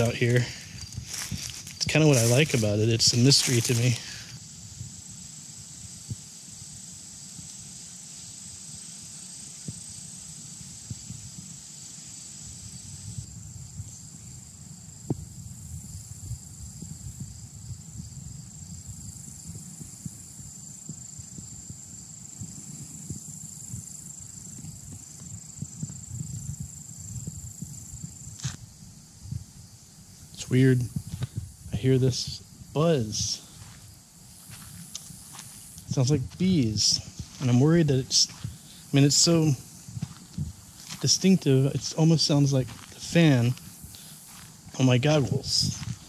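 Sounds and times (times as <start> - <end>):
low uneven rumble: 30.4 - 46.0.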